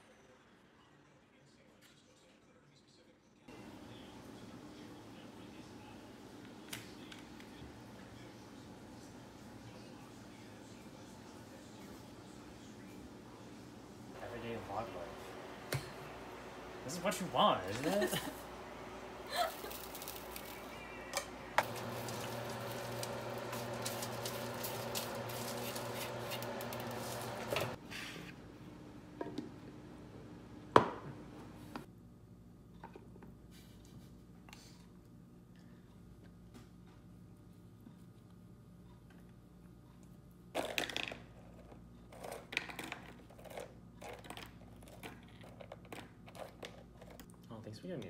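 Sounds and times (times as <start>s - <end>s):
steady hum: 7.7s - 32.6s.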